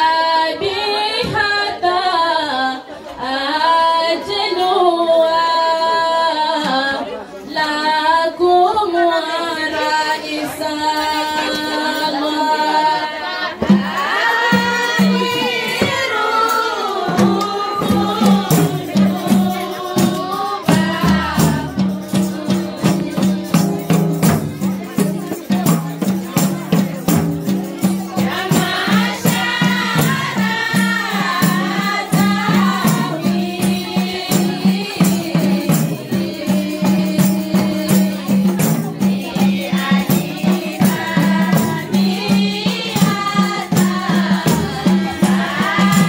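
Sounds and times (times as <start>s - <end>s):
women singing together: 0.0s - 46.0s
frame drums: 13.3s - 46.0s.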